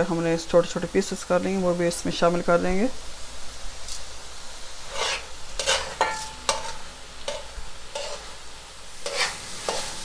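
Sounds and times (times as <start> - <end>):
metal spoon scraping a metal pan: 4.8 - 8.4, 9.0 - 10.0.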